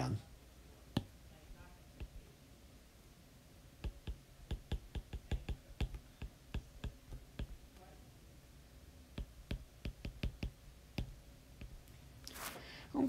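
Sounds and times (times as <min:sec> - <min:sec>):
stylus tapping on glass screen: 0:00.9 - 0:01.2, 0:03.8 - 0:07.6, 0:09.2 - 0:11.8.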